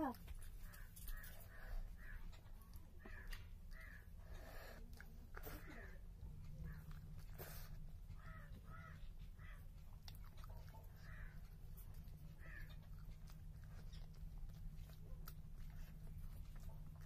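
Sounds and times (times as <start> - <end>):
person chewing: 0.3 - 17.0
crow cawing: 3.0 - 4.1, 8.2 - 9.6, 12.4 - 12.7.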